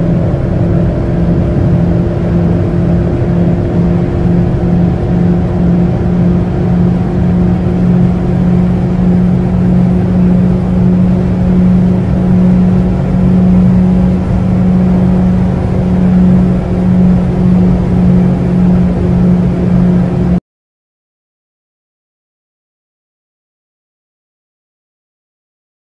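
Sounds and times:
car engine drone: 0:00.0 - 0:20.4.

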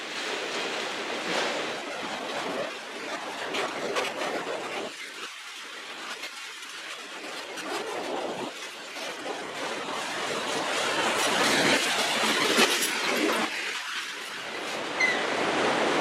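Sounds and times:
train wheels rushing on rails: 0:09.1 - 0:16.0.

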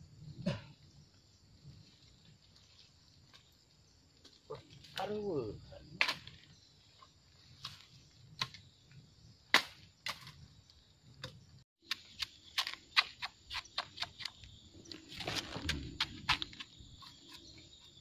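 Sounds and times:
machete chopping bamboo: 0:09.5 - 0:10.3, 0:11.9 - 0:14.4.

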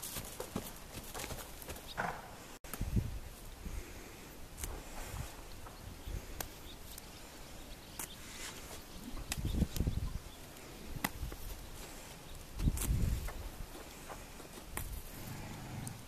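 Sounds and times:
horse hoof steps on dirt: 0:00.0 - 0:02.4.

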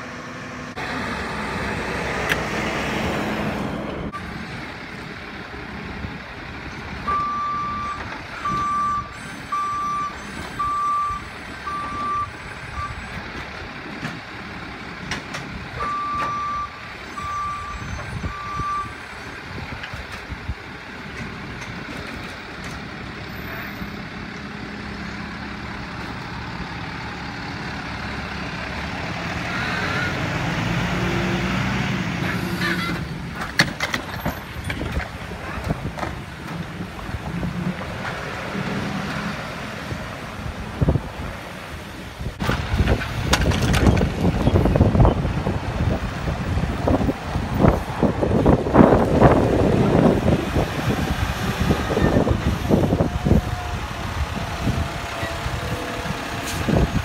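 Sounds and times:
heavy garbage truck engine: 0:00.0 - 0:57.0
truck engine running: 0:00.0 - 0:57.0
truck backup alarm beeping: 0:07.0 - 0:13.3, 0:15.7 - 0:19.4.

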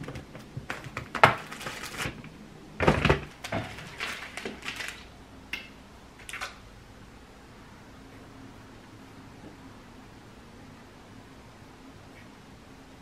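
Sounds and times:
plastic bin clattering: 0:00.0 - 0:05.1
plastic rustles: 0:00.0 - 0:05.1.

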